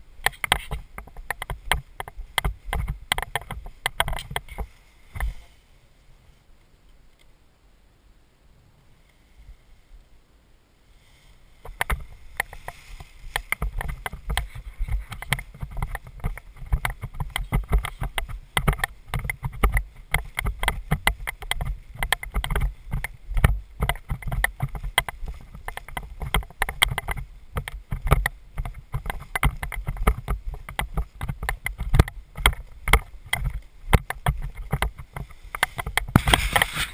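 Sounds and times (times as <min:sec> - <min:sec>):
nylon fabric rustling and crinkling: 0:11.6 - 0:22.0, 0:27.2 - 0:36.9
low thumps: 0:11.6 - 0:36.9.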